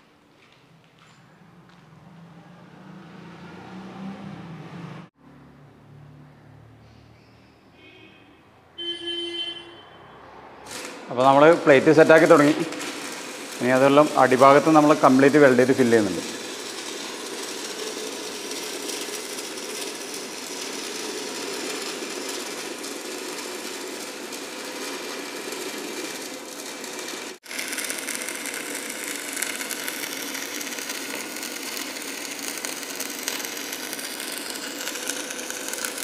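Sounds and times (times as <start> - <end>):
welding arc crackling and hissing: 10.6 - 36.0.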